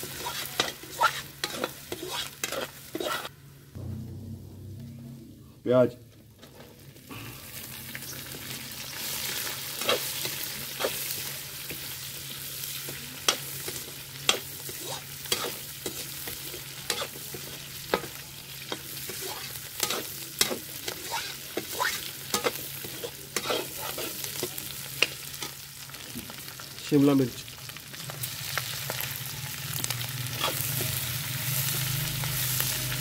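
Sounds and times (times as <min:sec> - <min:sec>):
metal spoon scraping and clinking pan: 0:00.0 - 0:03.3
onions sizzling in hot oil: 0:00.0 - 0:03.3, 0:06.4 - 0:33.0.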